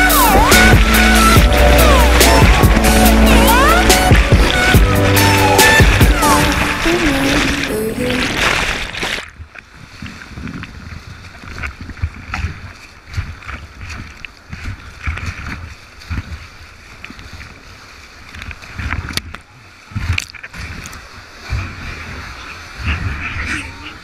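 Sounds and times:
muffled underwater noise: 0.0s - 8.4s, 21.4s - 24.0s
river water rushing: 0.0s - 9.2s
water splashes: 0.0s - 24.0s
low knocks: 0.3s - 6.6s.

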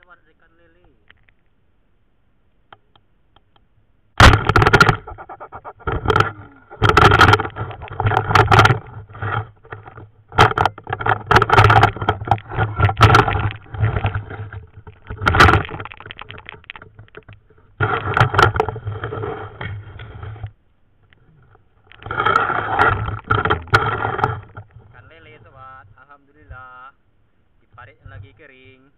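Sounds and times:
wading through shallow water: 4.2s - 20.6s, 21.2s - 26.1s
muffled scraping on muddy bank: 4.2s - 26.7s.

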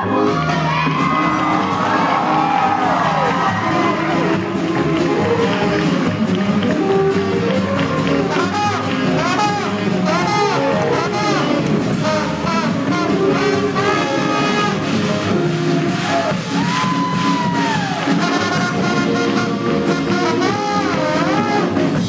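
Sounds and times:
swing band playing jazz: 0.0s - 22.0s.

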